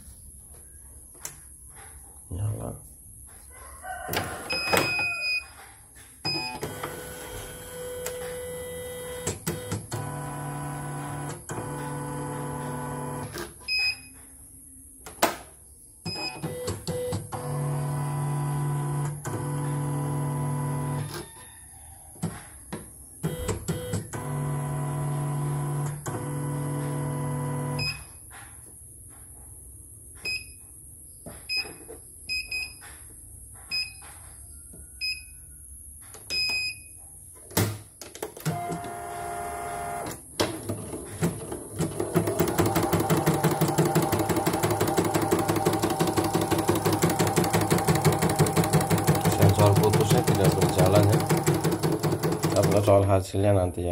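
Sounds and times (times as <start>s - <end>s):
machine stitching clatter: 38.2s - 53.0s
embroidery machine motor hum: 38.4s - 40.2s, 41.1s - 52.9s.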